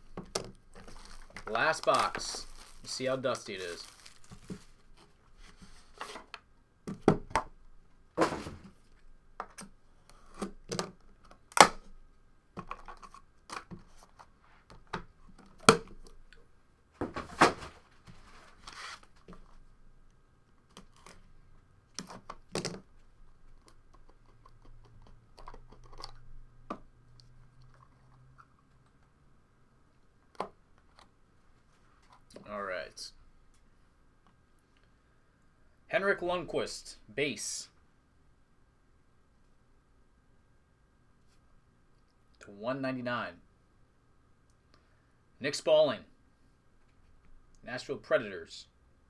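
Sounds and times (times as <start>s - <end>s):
cardboard sliding and scraping: 17.1s - 19.2s.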